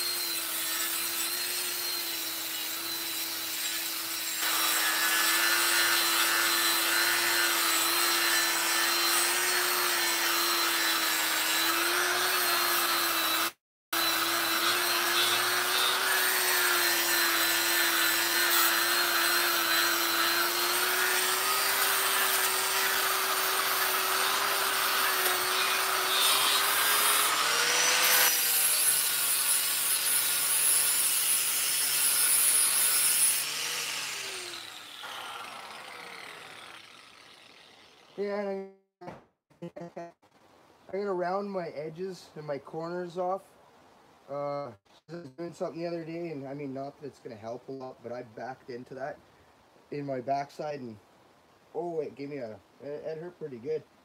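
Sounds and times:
electric grinder grinding metal: 0:00.0 - 0:38.3.

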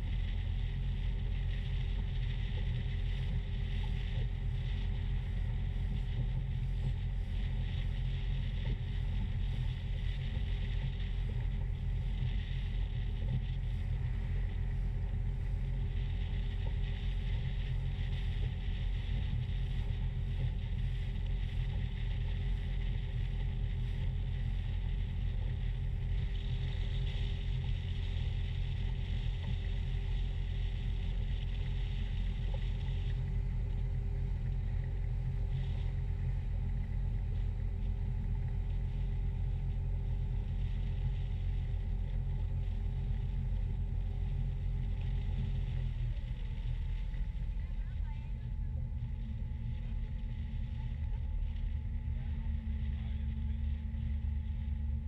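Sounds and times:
boat engine droning: 0:00.0 - 0:55.0
water and wind rushing over hull: 0:00.0 - 0:55.0.

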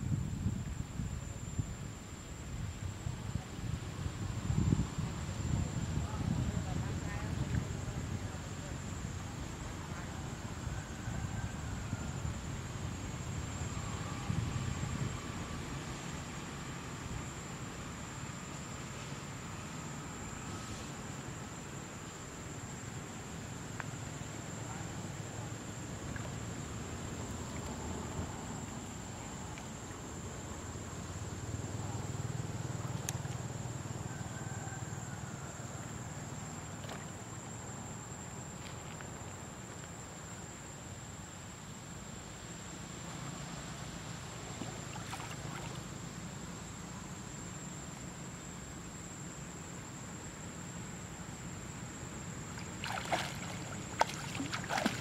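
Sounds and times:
pond water sloshing and lapping: 0:25.2 - 0:30.7, 0:32.4 - 0:33.7, 0:35.8 - 0:40.3, 0:44.3 - 0:46.4, 0:52.2 - 0:55.0
water splashes: 0:36.8 - 0:37.3, 0:44.6 - 0:46.0, 0:52.4 - 0:55.0.

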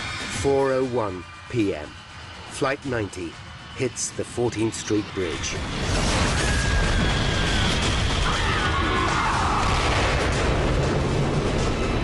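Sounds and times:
dramatic music: 0:05.4 - 0:12.0
airliner crash rumble with debris: 0:05.6 - 0:12.0.

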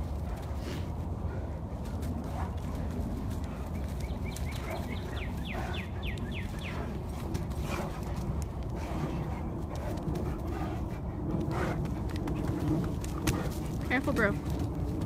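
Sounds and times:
wind rumble on microphone: 0:00.0 - 0:15.0
dogs scuffling on wood chips: 0:01.8 - 0:05.8.

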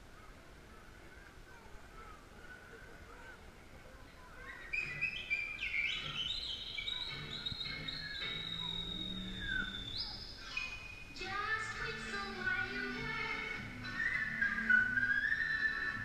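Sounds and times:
music with bird-like chirping notes: 0:04.6 - 0:11.1, 0:13.2 - 0:16.0.

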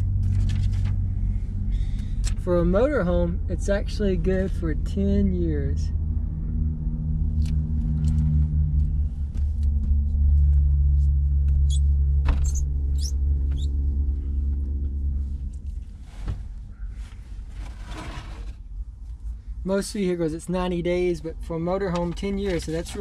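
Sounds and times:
vehicle engine idling: 0:00.0 - 0:17.7.

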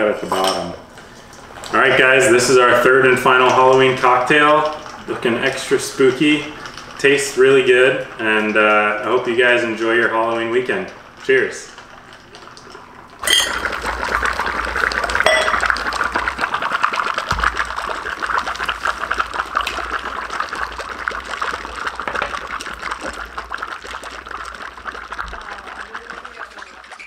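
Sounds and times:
dry ice bubbling in glass: 0:00.8 - 0:27.0.

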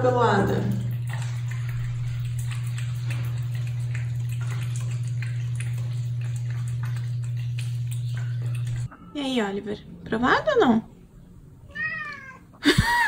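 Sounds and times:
steady low hum: 0:00.0 - 0:11.7
cat licking and chewing: 0:00.8 - 0:08.9.

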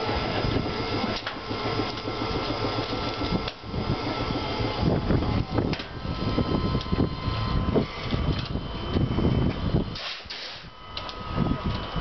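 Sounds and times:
faint steady whine: 0:00.0 - 0:12.0
railcar equipment clatter and rumble: 0:00.0 - 0:12.0.

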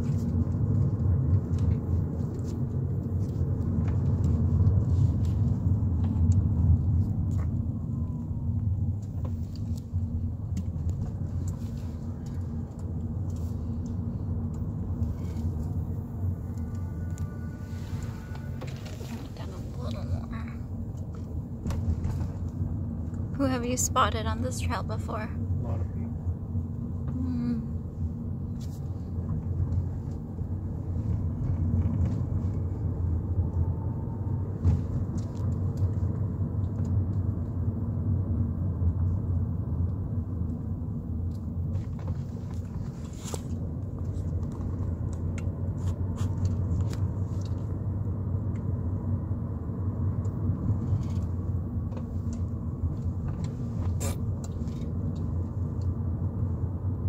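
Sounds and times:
car engine and tyres rumbling: 0:00.0 - 0:57.0.

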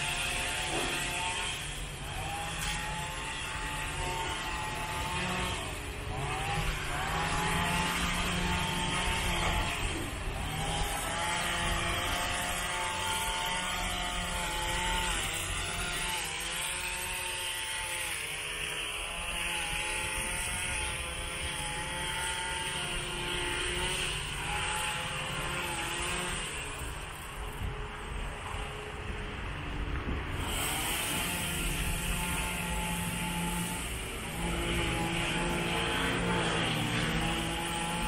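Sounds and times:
engine running steadily: 0:18.3 - 0:38.0.

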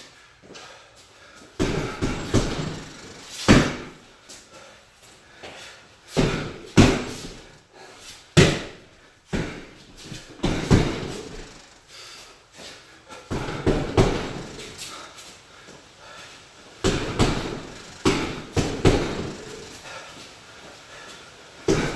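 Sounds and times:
gloved punches on heavy bag: 0:01.6 - 0:04.0, 0:06.1 - 0:07.6, 0:08.4 - 0:11.7, 0:13.3 - 0:15.0, 0:16.8 - 0:19.9, 0:21.6 - 0:21.9.

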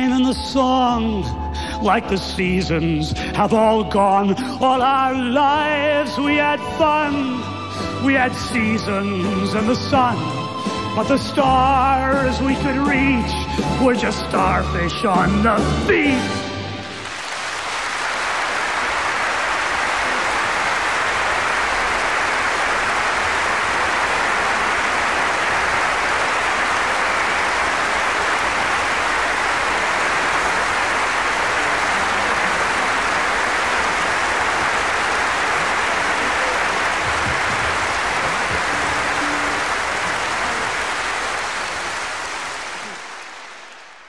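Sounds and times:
audience applause: 0:16.8 - 0:44.0.

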